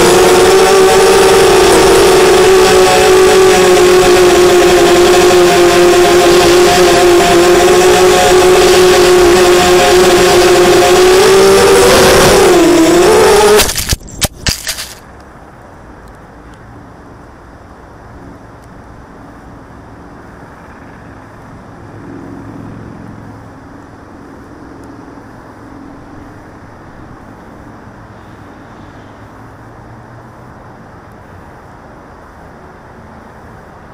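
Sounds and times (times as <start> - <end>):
quadcopter motors whining: 0.0 - 15.0
quadcopter crashing on ground: 11.2 - 15.0.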